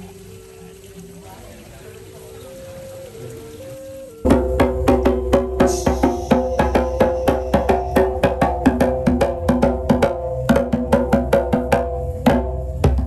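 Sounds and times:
sustained pitched tones: 4.3 - 9.6
low drone: 4.3 - 10.1
quick percussion strikes: 4.3 - 13.0.

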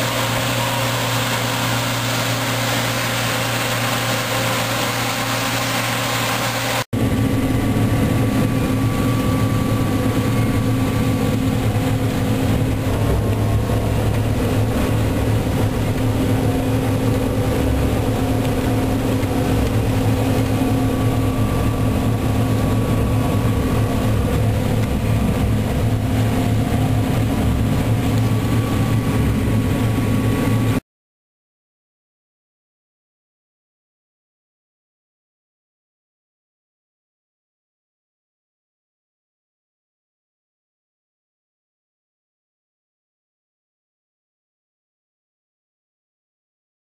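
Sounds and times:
combine harvester drone: 0.0 - 30.8.

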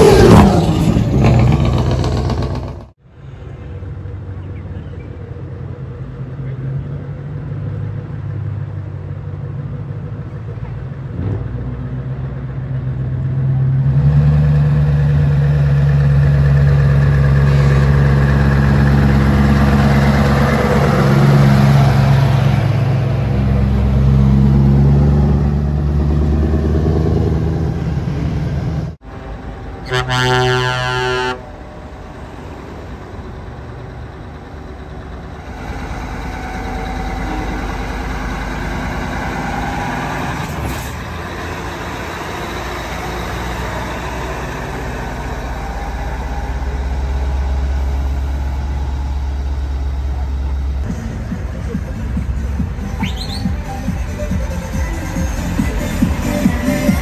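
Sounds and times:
loud truck engines revving: 0.0 - 3.0, 3.7 - 57.0
truck horn blast: 29.8 - 31.5.

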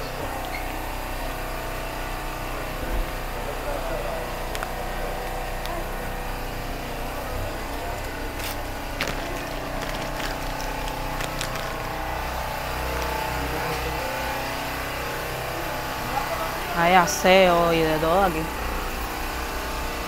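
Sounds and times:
generator engine running: 0.0 - 20.0.

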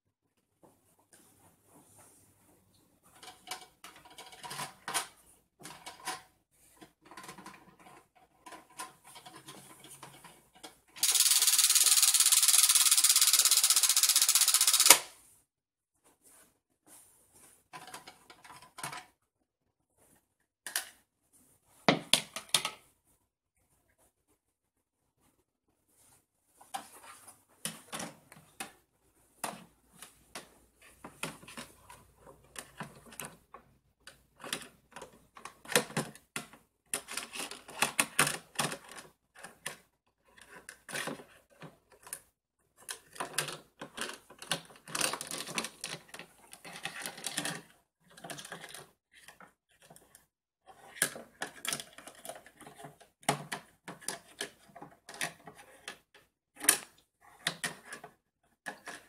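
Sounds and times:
plastic toy cookware clattering: 3.2 - 6.3, 6.9 - 15.0, 42.8 - 50.1, 50.7 - 59.0.

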